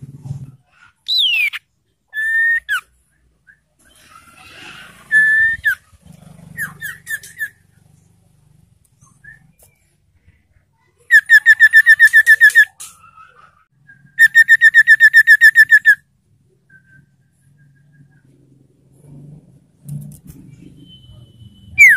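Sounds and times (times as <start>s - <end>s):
bird whistling and trilling: 1.0s - 4.3s, 5.0s - 5.8s, 6.6s - 7.6s, 9.0s - 9.8s, 11.1s - 16.0s, 16.6s - 18.2s.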